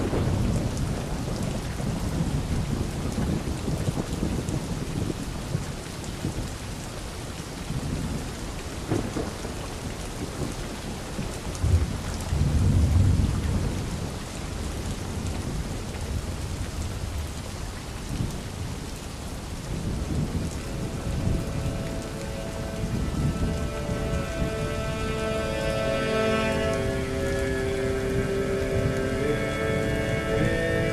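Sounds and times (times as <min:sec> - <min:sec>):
thunder rolling: 0:00.0 - 0:04.1, 0:19.7 - 0:30.9
steady rain: 0:00.0 - 0:30.9.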